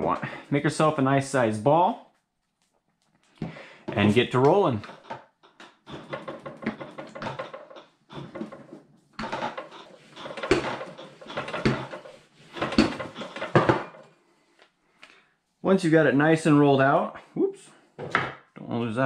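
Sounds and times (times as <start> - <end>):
rolling pin knocking on wood: 3.9 - 14.0
rolling pin rolling dough: 3.9 - 14.1.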